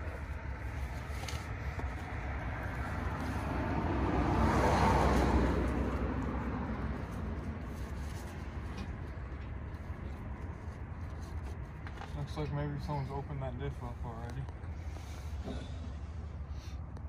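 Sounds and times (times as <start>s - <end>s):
car driving past: 2.2s - 7.4s.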